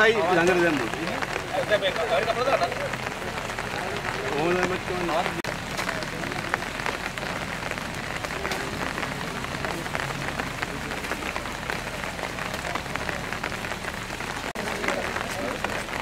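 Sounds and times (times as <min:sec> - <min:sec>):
raindrops striking close by: 0:00.0 - 0:16.0
steady rain: 0:00.0 - 0:16.0.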